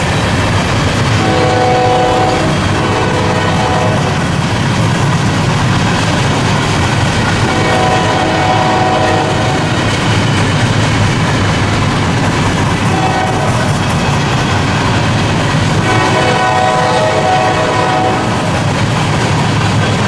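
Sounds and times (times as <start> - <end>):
freight cars rumbling on rails: 0.0 - 20.0
locomotive air horn: 1.2 - 4.3, 7.4 - 9.9, 12.9 - 13.8, 15.7 - 18.6.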